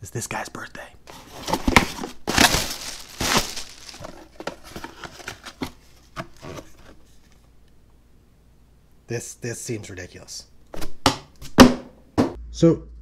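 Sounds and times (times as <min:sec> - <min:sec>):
cardboard flaps rustling: 0:01.1 - 0:07.0
cardboard box tearing: 0:01.2 - 0:04.0.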